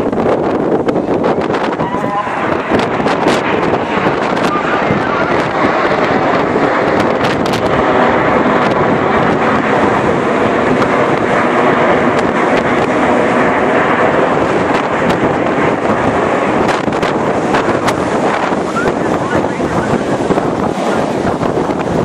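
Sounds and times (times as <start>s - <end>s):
jets roaring overhead: 0.0s - 22.0s.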